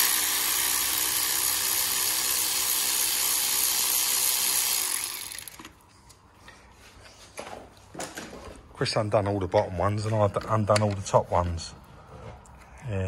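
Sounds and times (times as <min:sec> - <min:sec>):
cordless power tool running: 0:00.0 - 0:05.8.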